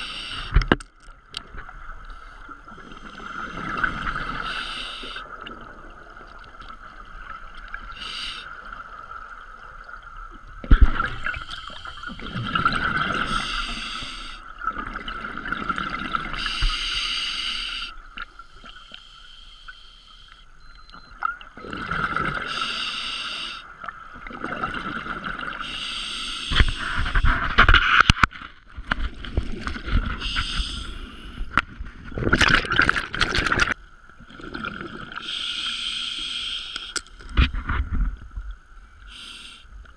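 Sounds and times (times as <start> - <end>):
underwater exhaled bubbles: 1.4 - 17.0, 21.2 - 22.8, 23.7 - 25.8, 29.1 - 35.4.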